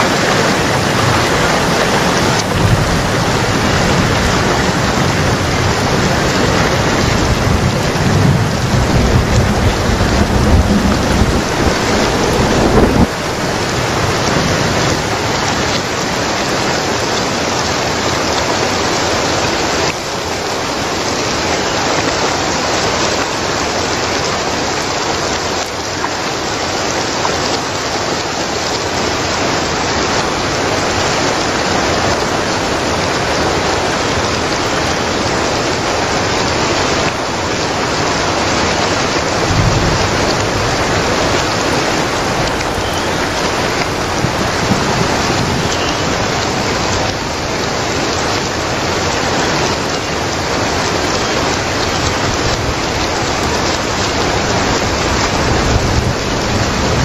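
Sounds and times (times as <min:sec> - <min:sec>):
heavy rain splashing on rock: 0:00.0 - 0:57.0
low rumble: 0:05.9 - 0:15.0.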